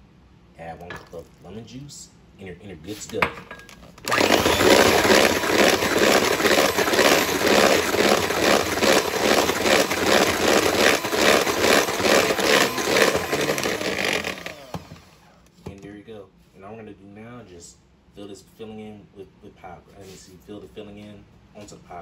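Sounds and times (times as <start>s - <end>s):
electric hand mixer whipping: 4.0s - 15.2s.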